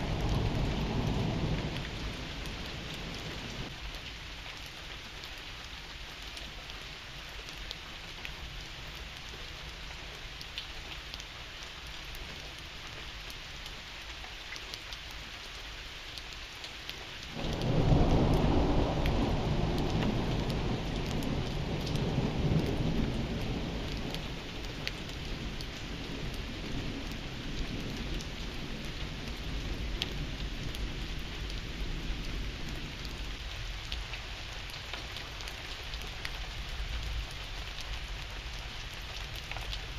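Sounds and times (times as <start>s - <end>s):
thunderclap rumbling: 0.0s - 3.7s, 17.4s - 32.5s
steady rain falling: 0.0s - 39.9s.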